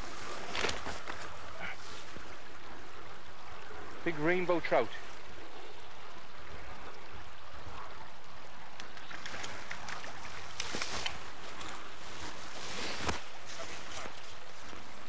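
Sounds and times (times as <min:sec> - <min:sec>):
steady hiss: 0:09.2 - 0:15.0.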